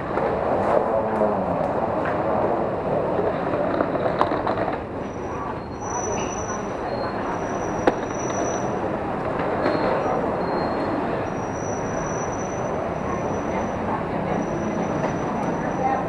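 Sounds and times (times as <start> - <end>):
rumble of passing vehicles: 0.0 - 16.0
faint high-pitched squeals: 5.0 - 8.8.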